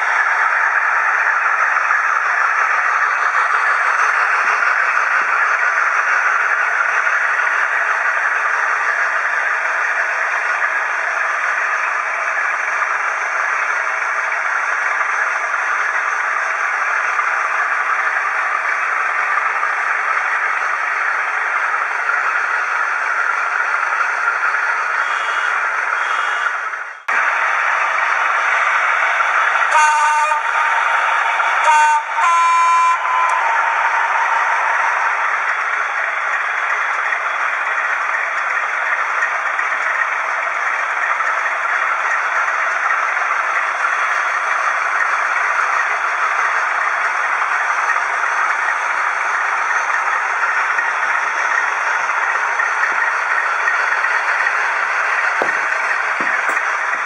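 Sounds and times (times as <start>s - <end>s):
model train rolling on track: 0.0s - 57.0s
model diesel horn: 25.0s - 26.6s, 29.6s - 30.8s, 31.6s - 33.6s.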